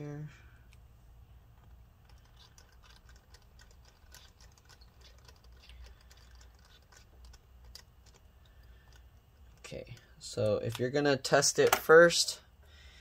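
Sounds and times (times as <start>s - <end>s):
faint low hum: 0.0s - 13.0s.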